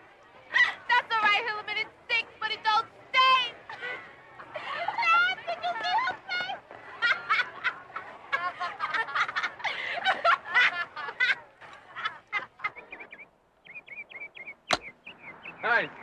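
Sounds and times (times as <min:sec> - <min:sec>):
group of people laughing: 0:03.7 - 0:06.2, 0:06.8 - 0:13.1
bird chirps: 0:12.8 - 0:16.0
golf club striking ball: 0:14.7 - 0:15.0.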